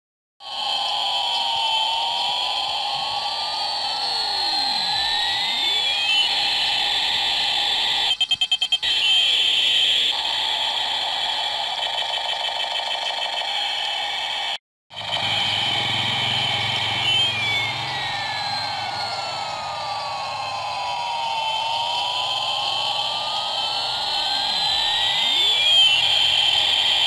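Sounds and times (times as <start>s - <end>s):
stuttering electronic pulses: 0.4s - 27.0s
buzzing synthetic tones sweeping: 15.0s - 27.0s.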